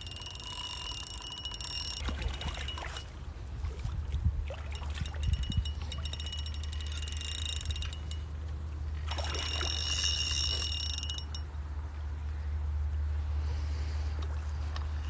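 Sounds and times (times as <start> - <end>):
fishing reel ratchet clicking: 0.0 - 3.1, 4.8 - 8.4, 9.1 - 11.5.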